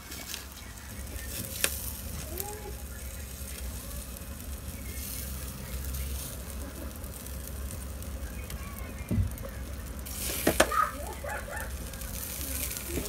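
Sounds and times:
chicken sizzling on a grill: 0:00.0 - 0:13.0.

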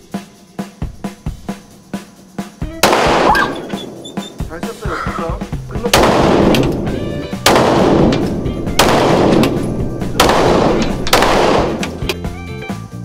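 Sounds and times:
pistol shots echoing indoors: 0:02.8 - 0:04.1, 0:05.8 - 0:11.9.

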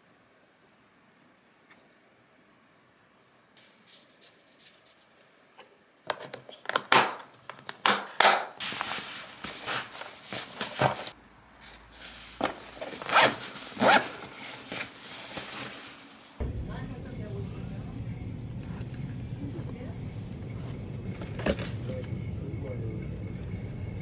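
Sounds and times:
lunch bag fabric rustling: 0:08.6 - 0:16.4
zipper being closed: 0:12.4 - 0:15.8.

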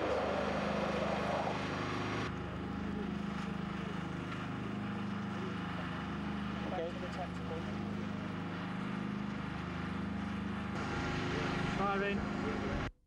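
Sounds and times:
machine drone: 0:00.0 - 0:13.0.

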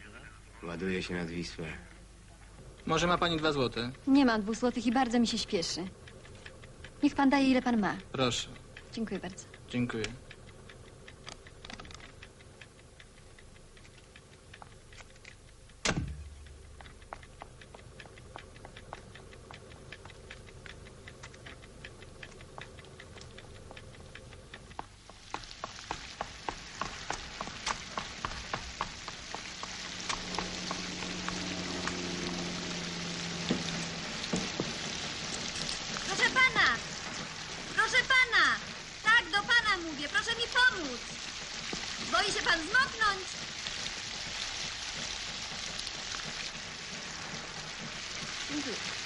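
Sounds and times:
raindrops ticking on car: 0:02.6 - 0:12.4, 0:13.2 - 0:49.0
heavy thump: 0:15.8 - 0:16.4
low hum: 0:15.8 - 0:24.4, 0:27.4 - 0:39.9
heavy downpour: 0:27.1 - 0:49.0.

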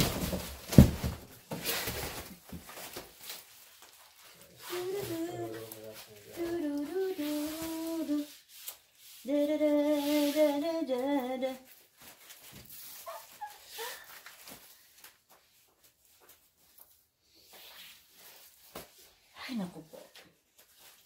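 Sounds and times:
faint rustles: 0:01.6 - 0:19.2
woman humming: 0:04.6 - 0:05.7.

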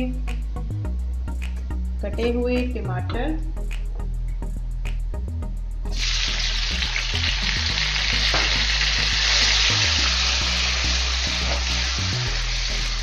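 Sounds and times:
food sizzling in hot oil: 0:05.9 - 0:13.0.

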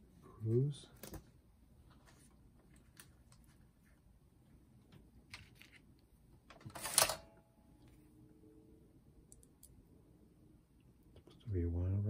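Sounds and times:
faint clicks of small parts: 0:09.3 - 0:09.8.

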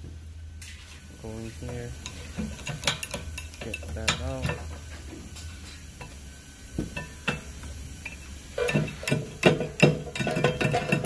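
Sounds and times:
screwdriver clinking and scraping metal: 0:08.6 - 0:11.0.

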